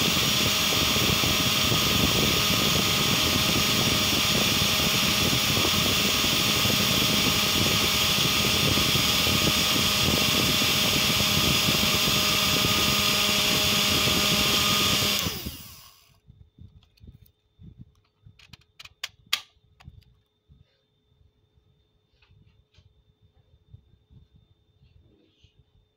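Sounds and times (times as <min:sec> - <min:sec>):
small fan motor whirring: 0:00.0 - 0:16.2.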